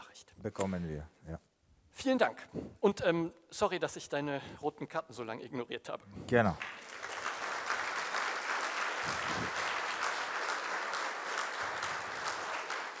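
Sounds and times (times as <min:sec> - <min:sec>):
audience applauding: 0:06.6 - 0:13.0.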